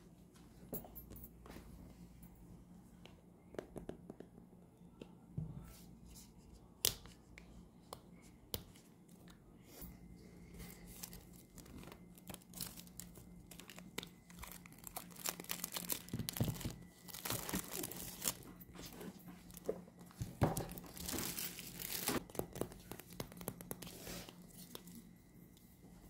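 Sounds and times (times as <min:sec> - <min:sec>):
plastic shrink-wrap tearing and crinkling: 0:10.9 - 0:18.5, 0:20.6 - 0:23.4.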